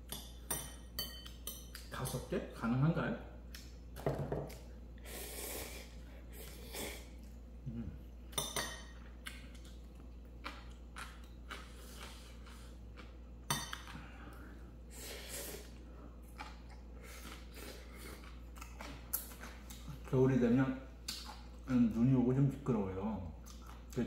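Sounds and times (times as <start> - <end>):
utensils clinking against dishes: 0.1 - 2.4.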